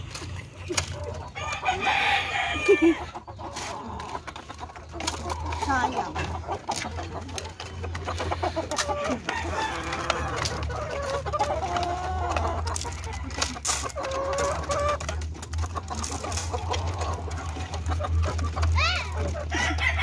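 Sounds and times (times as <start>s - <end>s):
chickens clucking: 0.0s - 20.0s
rooster crowing: 1.4s - 2.9s, 9.2s - 10.4s, 19.5s - 20.0s.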